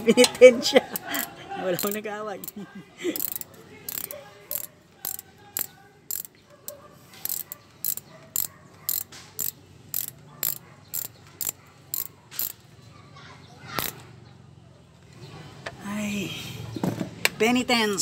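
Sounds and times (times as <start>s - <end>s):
ratchet wrench clicking: 0.9s - 2.6s, 3.2s - 6.4s, 7.2s - 12.6s, 13.8s - 14.0s.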